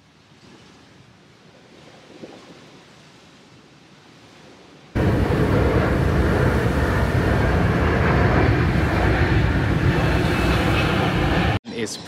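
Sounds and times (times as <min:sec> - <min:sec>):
jet airliner passing overhead: 0:05.0 - 0:12.0.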